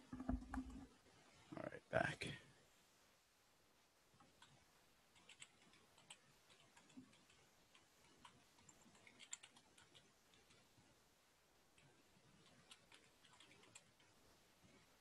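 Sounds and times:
typing on computer keyboard: 0:04.4 - 0:10.6, 0:11.8 - 0:14.1.

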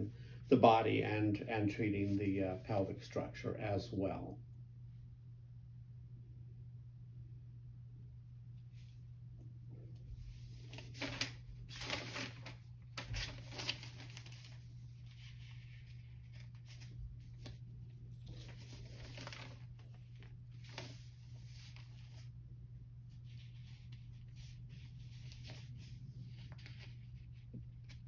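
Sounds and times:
steady low hum: 0:00.0 - 0:28.0
paper rustling: 0:09.9 - 0:22.3, 0:23.0 - 0:28.0.

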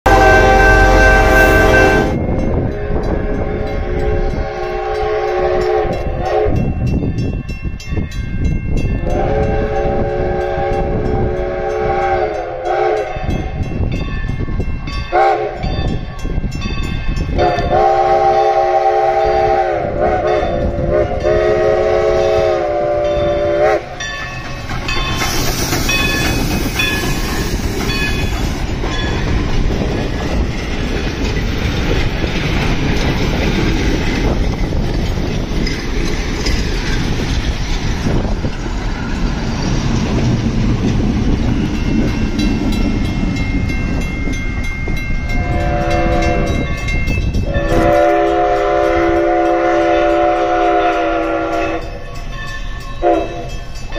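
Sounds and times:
train rumbling and rail clatter: 0:00.0 - 0:53.9
steam locomotive whistle: 0:00.1 - 0:06.9, 0:09.0 - 0:13.7, 0:15.1 - 0:15.7, 0:17.4 - 0:24.1, 0:45.2 - 0:52.2, 0:53.0 - 0:53.7.

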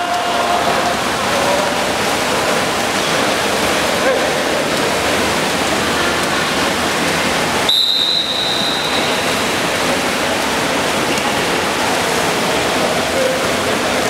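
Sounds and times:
swimmers splashing water: 0:00.0 - 0:14.0
referee's whistle blast: 0:07.7 - 0:09.3.

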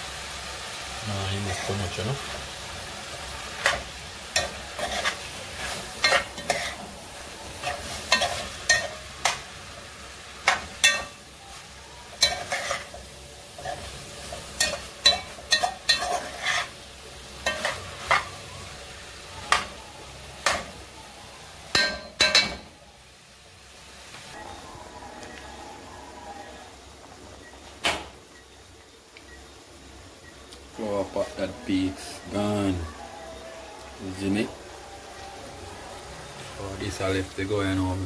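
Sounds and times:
food sizzling: 0:00.0 - 0:38.0
spatula scraping frying pan: 0:03.5 - 0:09.5, 0:12.1 - 0:18.3.

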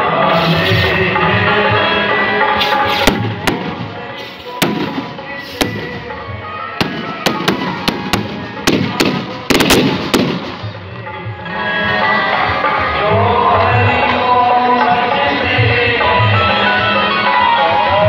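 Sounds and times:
background music: 0:00.0 - 0:18.0
fireworks banging: 0:02.5 - 0:10.9.

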